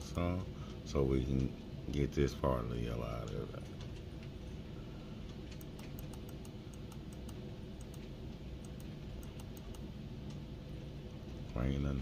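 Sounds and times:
low room hum: 0:00.0 - 0:12.0
computer mouse clicks: 0:05.5 - 0:09.9.

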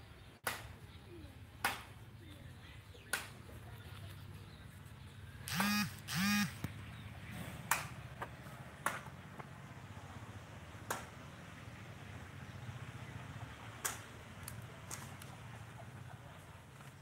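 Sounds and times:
sharp clicks: 0:05.5 - 0:06.8.

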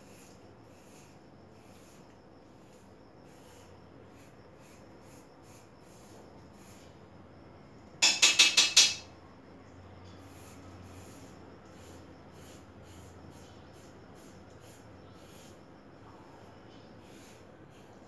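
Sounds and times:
razor scraping a scalp: 0:00.0 - 0:06.9, 0:10.2 - 0:15.6, 0:17.0 - 0:18.0.

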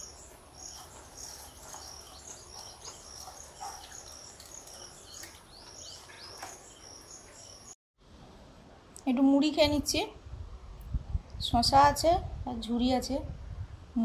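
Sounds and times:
bird chirps: 0:00.0 - 0:07.8.

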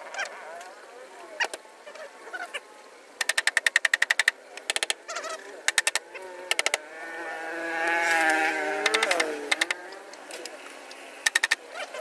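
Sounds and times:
wavering animal call: 0:01.4 - 0:02.6, 0:05.0 - 0:07.5
rapid sharp clicks: 0:03.2 - 0:05.0, 0:05.6 - 0:06.8, 0:08.8 - 0:11.6.

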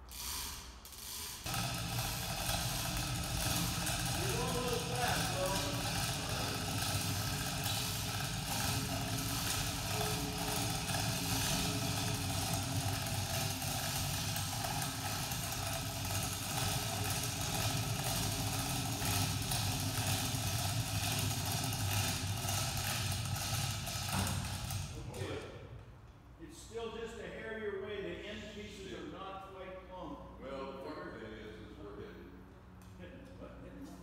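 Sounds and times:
electric chain hoist running: 0:00.0 - 0:25.0.

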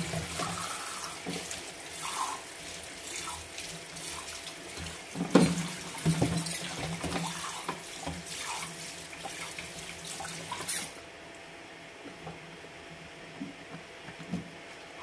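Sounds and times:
tap running into sink: 0:04.8 - 0:08.3.

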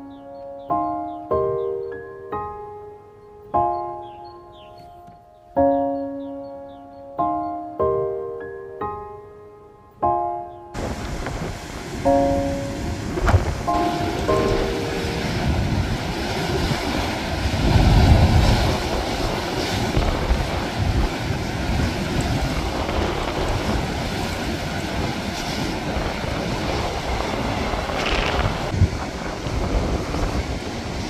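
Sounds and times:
surf breaking against rocks: 0:10.8 - 0:31.0
wind buffeting microphone: 0:10.8 - 0:31.0.

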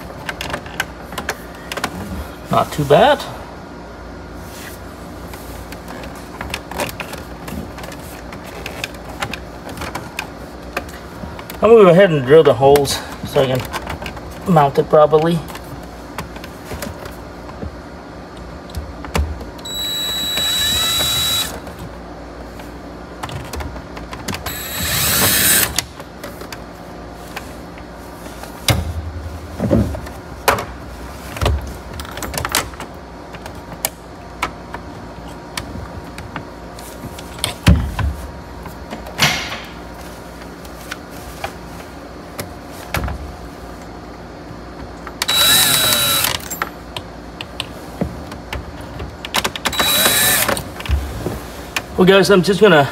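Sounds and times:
cordless drill whining: 0:19.6 - 0:21.6, 0:24.5 - 0:25.8, 0:45.2 - 0:46.6, 0:49.7 - 0:50.6.

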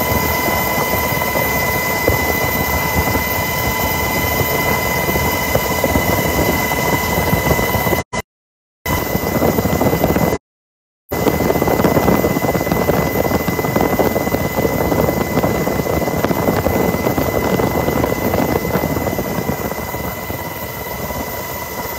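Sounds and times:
thin high whine: 0:00.0 - 0:08.2, 0:08.9 - 0:10.4, 0:11.1 - 0:21.9
helicopter rotor and engine noise: 0:00.0 - 0:08.3, 0:08.9 - 0:10.4, 0:11.1 - 0:21.9.

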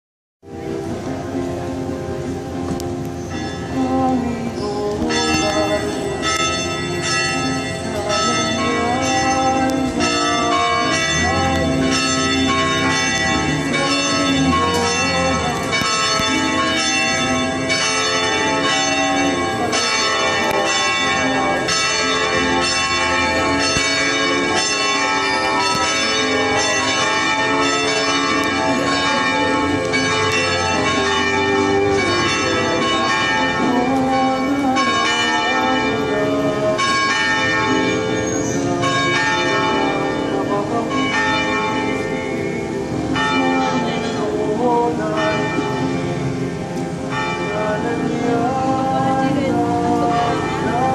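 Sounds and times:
church bells ringing: 0:00.4 - 0:50.9.

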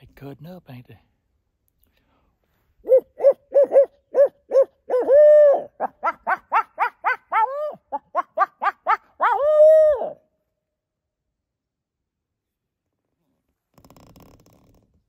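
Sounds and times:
man imitating owl hoots: 0:02.8 - 0:10.2.

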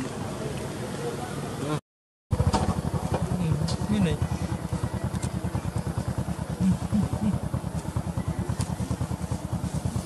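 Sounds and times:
small engine idling: 0:02.3 - 0:10.0.

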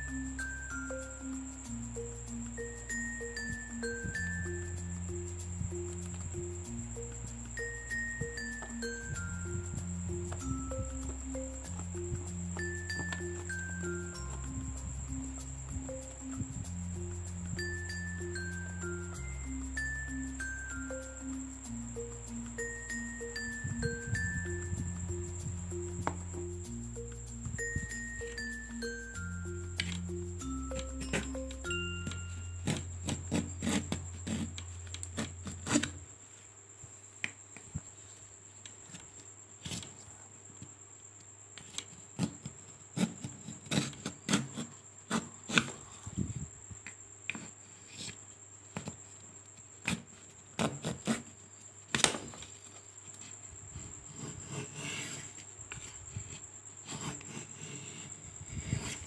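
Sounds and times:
background music: 0:00.0 - 0:35.9
hand plane scraping wood: 0:32.6 - 0:36.0.

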